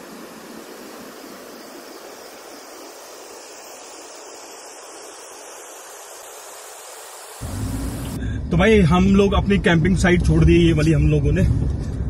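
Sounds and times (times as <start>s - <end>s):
flowing water rushing: 0.0s - 8.2s.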